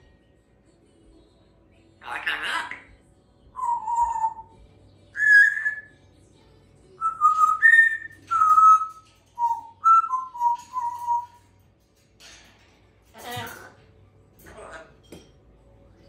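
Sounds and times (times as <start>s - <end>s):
parrot whistling: 3.6s - 4.5s, 5.2s - 5.9s, 7.0s - 11.4s.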